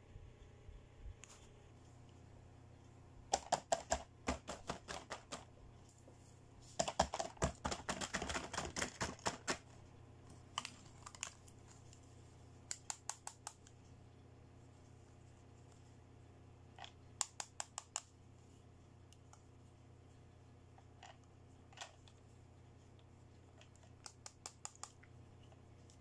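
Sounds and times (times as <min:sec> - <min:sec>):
plastic toys clicking and tapping: 0:03.3 - 0:05.5, 0:06.8 - 0:09.7, 0:12.7 - 0:13.7, 0:16.8 - 0:18.1, 0:23.6 - 0:25.0.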